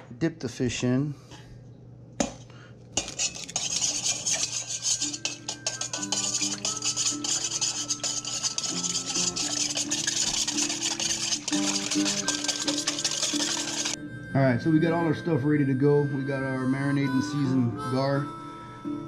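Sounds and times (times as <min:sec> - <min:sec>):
whisk rattling in metal bowl: 0:03.0 - 0:14.0
background music: 0:04.1 - 0:19.0.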